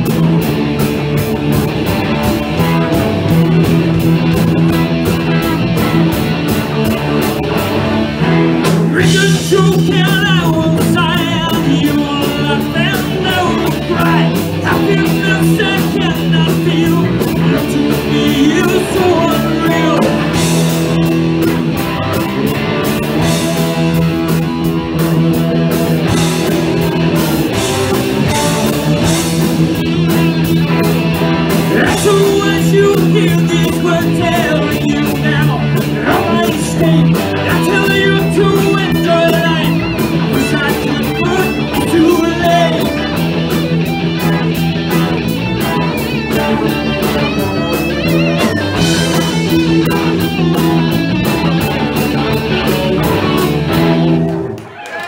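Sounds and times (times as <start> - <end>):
bass guitar: 0.0 - 55.0
drum kit: 0.0 - 55.0
electric guitars: 0.0 - 55.0
person singing: 8.8 - 20.4, 31.7 - 43.2.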